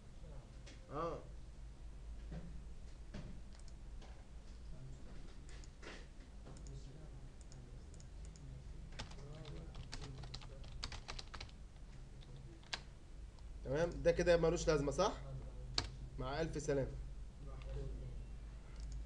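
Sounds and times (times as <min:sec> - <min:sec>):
faint steady hum: 0:00.0 - 0:19.0
computer keyboard typing: 0:09.0 - 0:11.6, 0:12.2 - 0:12.9.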